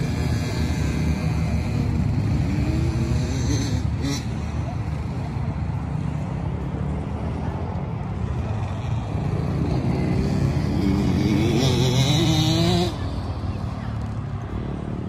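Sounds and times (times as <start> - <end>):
dirt bike engine revving: 9.4 - 13.0.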